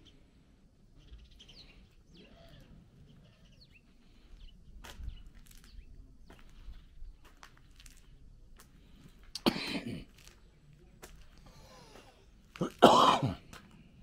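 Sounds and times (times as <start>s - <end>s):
faint bird chirps: 0.0s - 7.4s.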